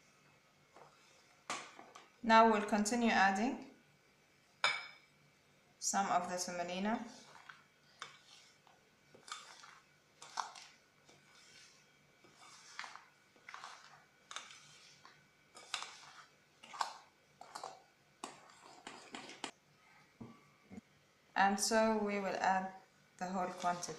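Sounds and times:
metal spoon stirring thick batter: 6.4 - 19.6, 23.2 - 23.9.

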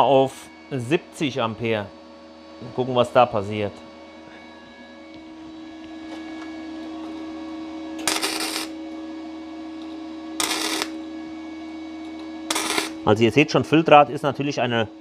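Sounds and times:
steady hum: 0.0 - 15.0
welding arc crackle: 8.0 - 8.8, 10.4 - 11.0, 12.5 - 13.1.

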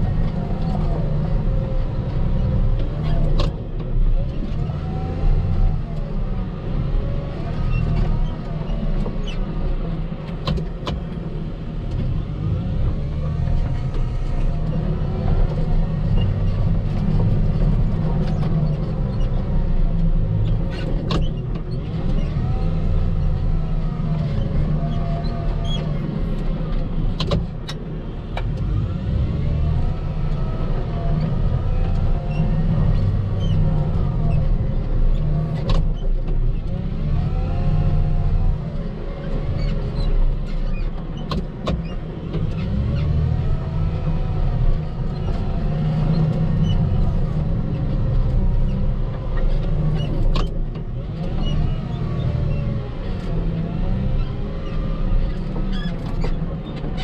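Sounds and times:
diesel engine working under load: 0.0 - 57.0.

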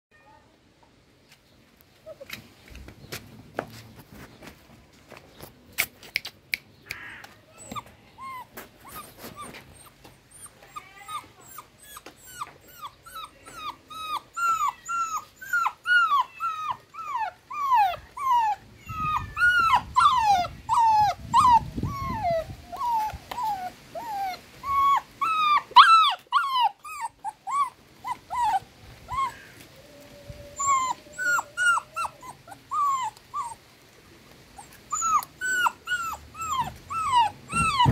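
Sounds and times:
puppy whimpering: 2.0 - 2.4, 7.1 - 33.6, 34.6 - 37.9.

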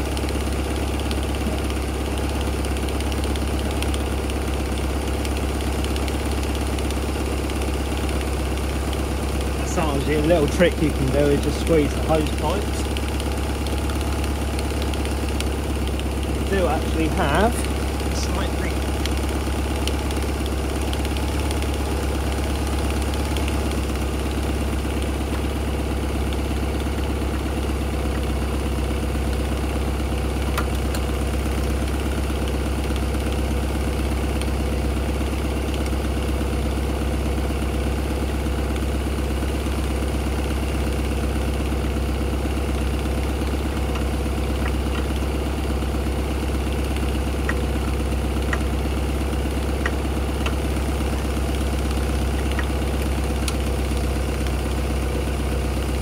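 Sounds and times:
car engine idling: 0.0 - 56.0.

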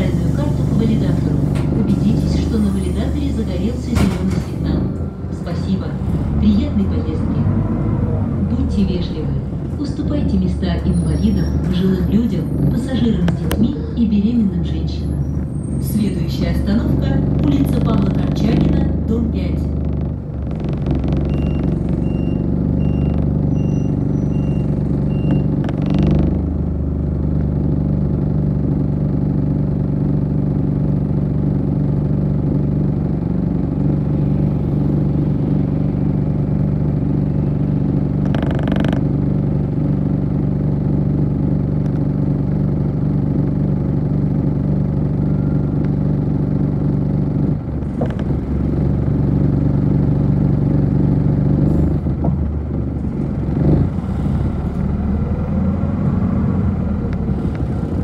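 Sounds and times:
bus engine idling: 0.0 - 58.0
electronic beeps: 21.3 - 25.5.

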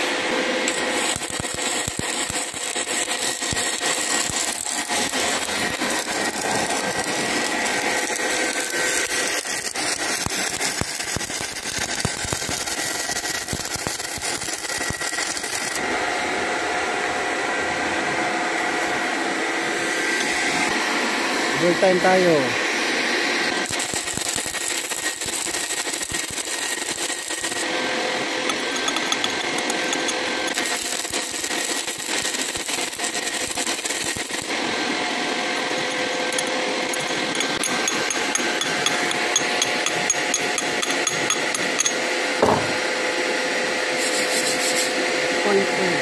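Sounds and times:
arc welding crackle and sizzle: 0.0 - 16.1, 21.5 - 43.0, 43.9 - 46.0
knock: 42.4 - 42.8.

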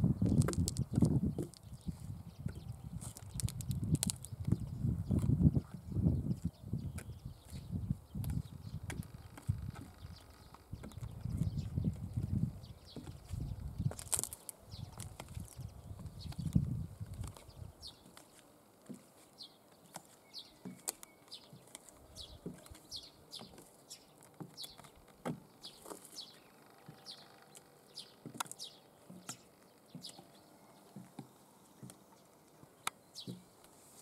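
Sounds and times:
bird chirping: 0.0 - 33.7
high heels tapping on concrete: 28.2 - 30.2.

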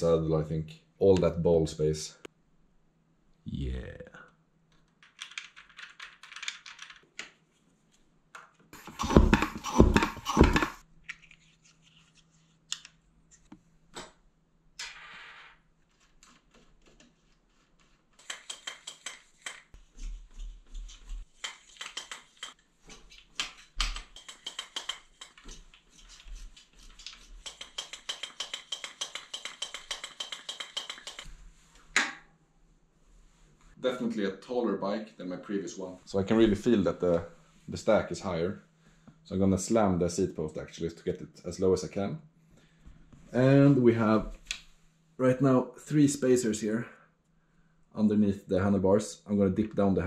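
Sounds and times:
bike parts knocking and rattling: 8.8 - 10.8, 18.2 - 19.7, 21.2 - 26.2, 27.0 - 31.3
shock pump strokes: 8.8 - 10.8.

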